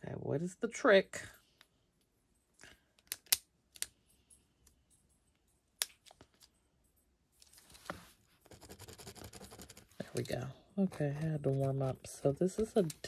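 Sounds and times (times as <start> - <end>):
pen scribbling on paper: 8.4 - 10.0.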